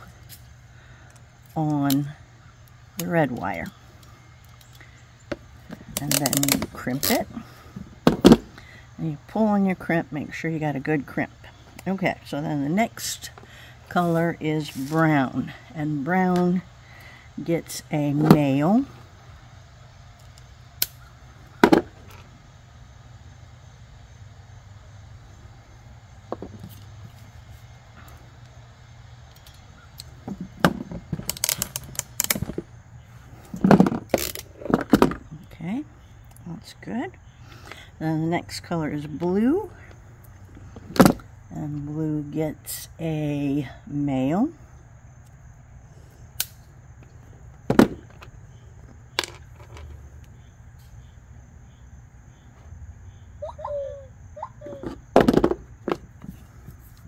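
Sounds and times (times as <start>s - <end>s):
steady low hum: 0.0s - 57.0s
crimping tool clicking: 31.2s - 32.4s, 46.4s - 46.6s
wire cutters snipping: 46.4s - 46.6s.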